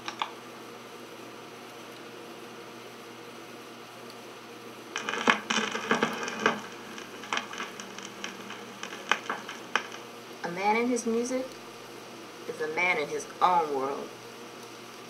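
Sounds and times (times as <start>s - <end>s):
clicks and crackles: 0.0s - 0.4s, 4.9s - 10.6s
film soundtrack hiss: 0.0s - 15.0s.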